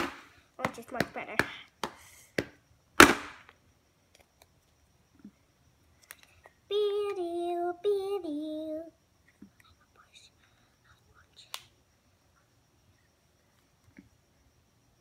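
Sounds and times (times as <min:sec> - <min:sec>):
sharp loud pop: 0:00.0 - 0:00.3, 0:03.0 - 0:03.5
child singing: 0:06.7 - 0:09.0.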